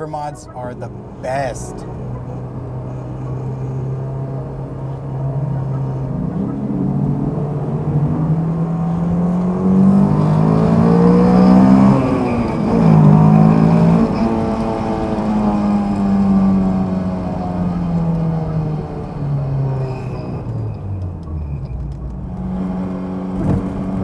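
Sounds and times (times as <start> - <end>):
car engine accelerating in tunnel: 0.0 - 24.0.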